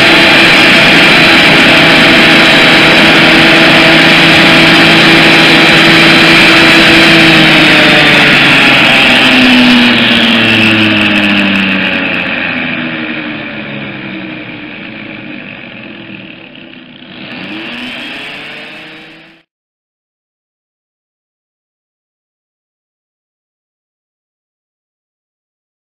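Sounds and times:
electric chainsaw cutting a log: 0.0s - 19.5s.

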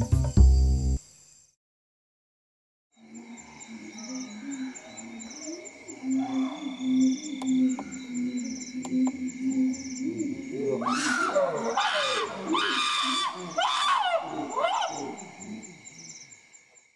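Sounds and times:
chimpanzee screams: 10.8s - 15.2s.

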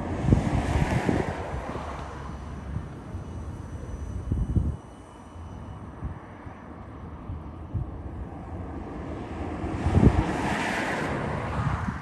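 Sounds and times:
wind gusting on microphone: 0.0s - 12.0s
vehicle tyre noise passing: 8.4s - 12.0s.

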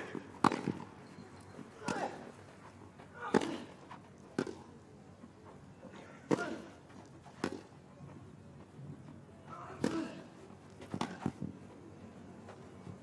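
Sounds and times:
tennis racquets hitting ball: 0.1s - 0.9s, 4.4s - 4.7s, 7.3s - 7.7s, 10.8s - 11.5s.

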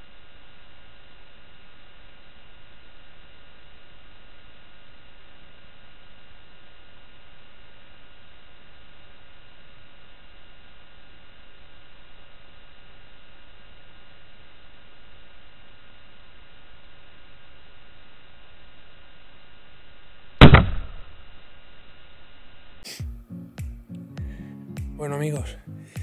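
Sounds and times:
faint hiss with thin hum: 0.0s - 26.0s
loud rifle shot: 20.4s - 21.2s.

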